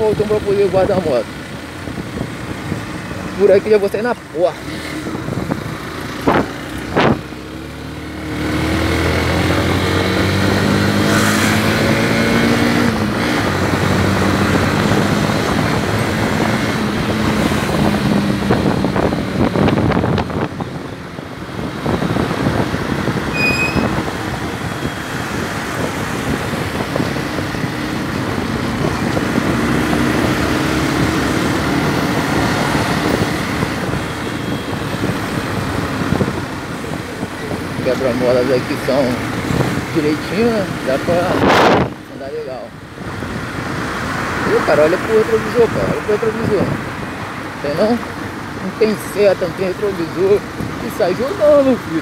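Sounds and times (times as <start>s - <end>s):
wind and road noise: 0.0s - 52.0s
motorcycle engine: 4.4s - 37.6s.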